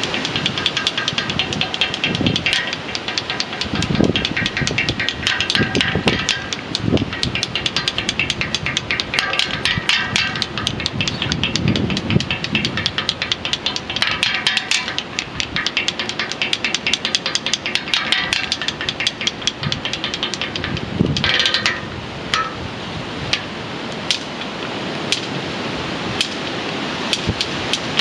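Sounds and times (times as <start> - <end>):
clattering strikes on iron bars: 0.0 - 22.7, 24.1 - 24.5.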